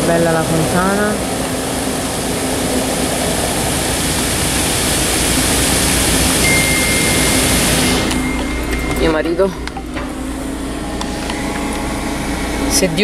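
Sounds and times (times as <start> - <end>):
fountain water jets splashing: 0.0 - 8.2
city traffic: 0.0 - 13.0
thin high tone: 6.1 - 13.0.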